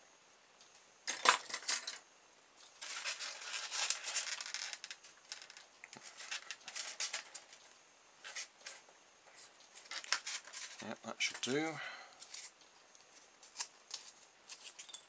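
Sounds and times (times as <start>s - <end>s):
wire scratching polystyrene foam: 2.8s - 4.6s.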